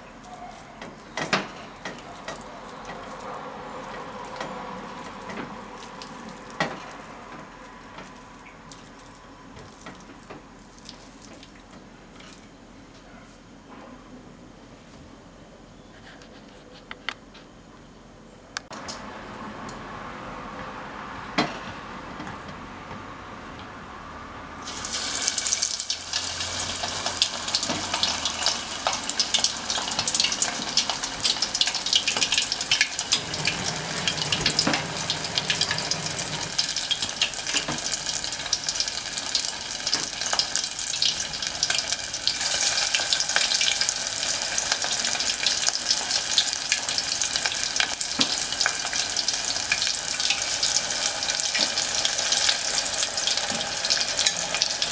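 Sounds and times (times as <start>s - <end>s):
meat deep-frying in oil: 0.0s - 12.5s, 24.6s - 54.9s.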